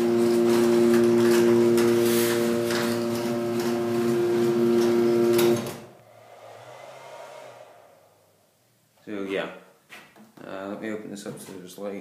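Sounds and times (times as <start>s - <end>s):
garage door opener motor running: 0.0s - 5.8s.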